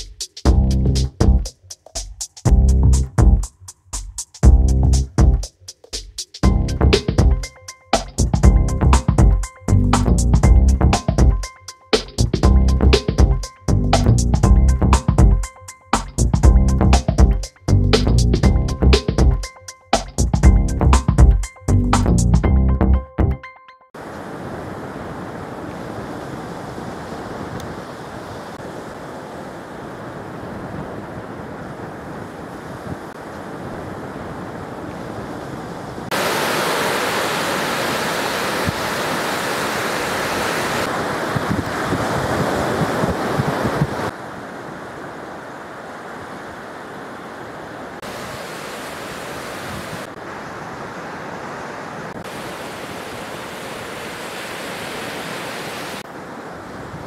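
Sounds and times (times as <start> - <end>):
surf washing onto beach: 24.0 - 57.0
wind buffeting microphone: 40.8 - 44.2.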